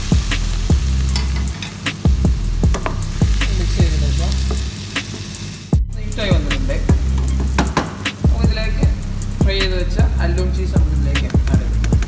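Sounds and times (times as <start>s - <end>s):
bass line: 0.0s - 1.2s, 2.1s - 4.7s, 5.8s - 12.0s
kick drum beat: 2.1s - 4.7s, 5.8s - 10.2s, 10.8s - 12.0s.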